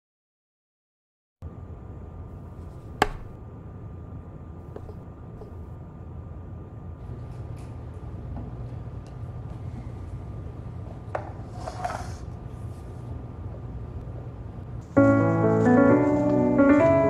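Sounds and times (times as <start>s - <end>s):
steady low hum: 1.4s - 16.8s
sharp knock: 2.8s - 3.4s
cup handled on wooden table: 4.8s - 5.6s.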